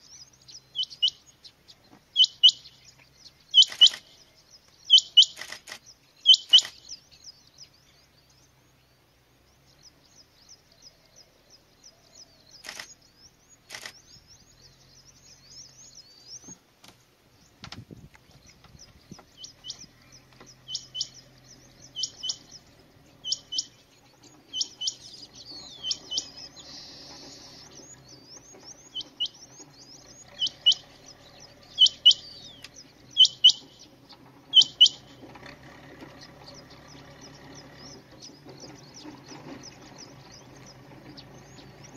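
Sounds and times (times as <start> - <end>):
small birds chirping: 0.0 - 41.9
quail calling: 2.2 - 2.8, 3.5 - 4.3, 4.9 - 5.6, 6.2 - 7.0, 19.0 - 41.9.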